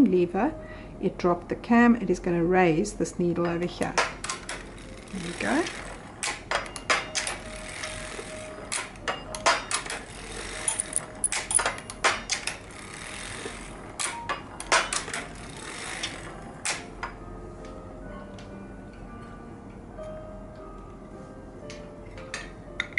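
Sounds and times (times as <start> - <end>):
knitting machine metallic clicks: 3.8 - 17.2.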